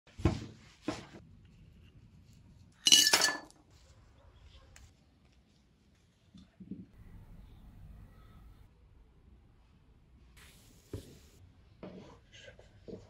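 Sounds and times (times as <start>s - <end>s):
glassware clinking: 2.9s - 3.5s.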